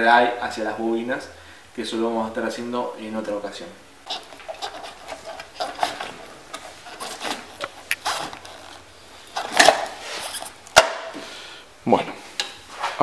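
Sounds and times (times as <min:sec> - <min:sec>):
wiring rustling and scraping: 0:04.0 - 0:10.8.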